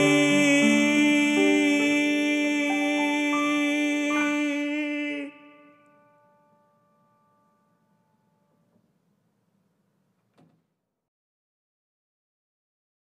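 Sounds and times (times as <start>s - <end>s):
piano notes: 0.0s - 8.3s.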